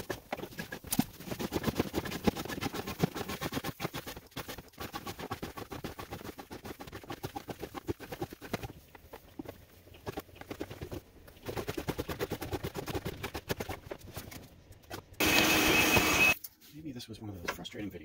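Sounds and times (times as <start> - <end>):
shop vacuum motor whine: 15.2 - 16.4.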